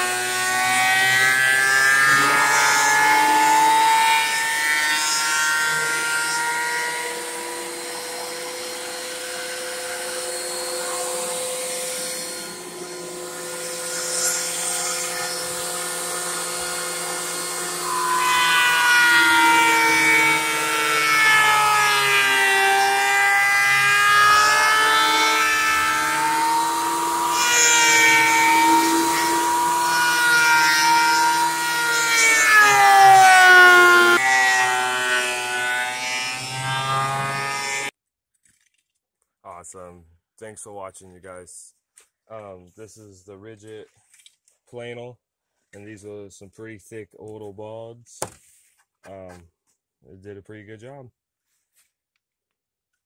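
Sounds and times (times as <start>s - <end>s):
thickness planer whining: 0.0s - 37.9s.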